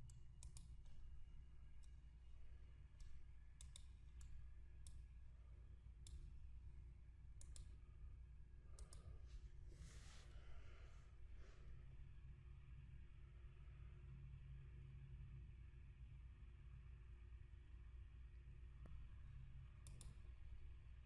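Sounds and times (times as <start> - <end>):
computer mouse clicks: 0.0 - 1.0, 2.9 - 5.0, 6.0 - 6.4, 7.4 - 7.8, 8.7 - 9.1, 19.8 - 20.3
low steady hum: 0.0 - 21.0.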